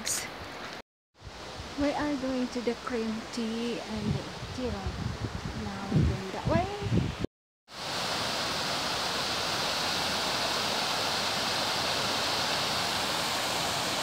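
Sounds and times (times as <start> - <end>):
water rushing over rocky waterfall: 7.7 - 14.0.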